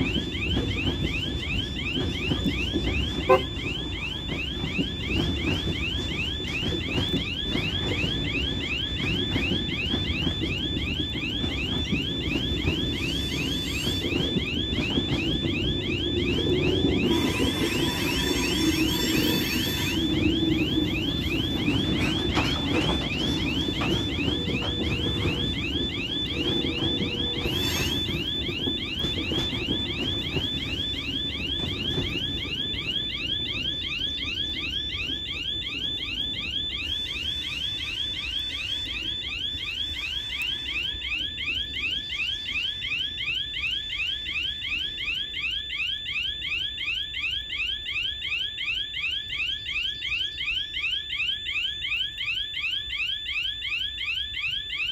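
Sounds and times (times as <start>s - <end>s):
freight wagons rumbling: 0.0s - 36.7s.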